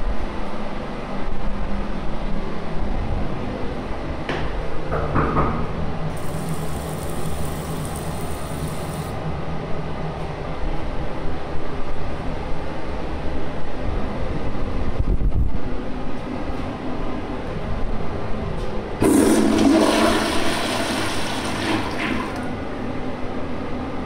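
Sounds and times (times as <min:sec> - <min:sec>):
faucet water running into sink: 0:06.2 - 0:09.1, 0:19.0 - 0:22.5.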